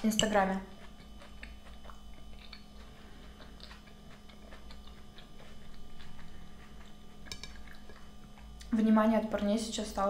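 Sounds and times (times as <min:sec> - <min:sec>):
chewing salad: 0:00.0 - 0:08.8
low steady hum: 0:00.0 - 0:10.0
wet mouth clicks: 0:00.9 - 0:02.8.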